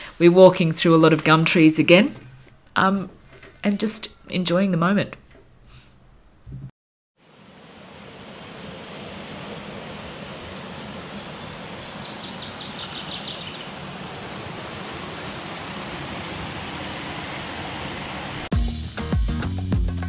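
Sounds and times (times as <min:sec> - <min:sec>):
stream rushing water: 0:07.2 - 0:18.5.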